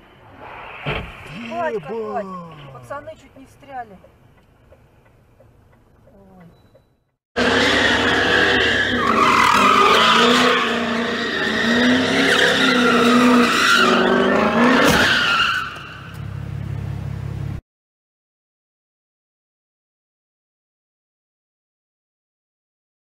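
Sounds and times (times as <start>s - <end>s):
car engine revving: 0.2s - 3.2s, 7.4s - 16.4s
tyres squealing on concrete: 6.6s - 16.1s.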